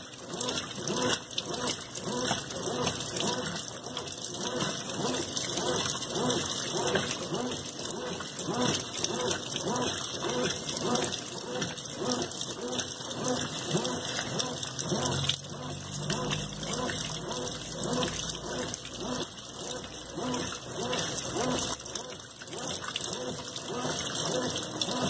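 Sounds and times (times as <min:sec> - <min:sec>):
washing machine water sloshing: 0:00.0 - 0:25.0
water pouring into tub: 0:00.0 - 0:25.0.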